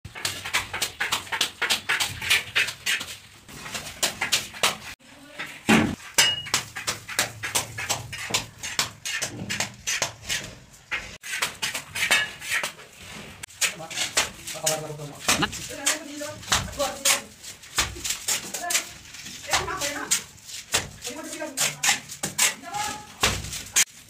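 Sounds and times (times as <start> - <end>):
trowel scraping metal pan: 5.4 - 14.9.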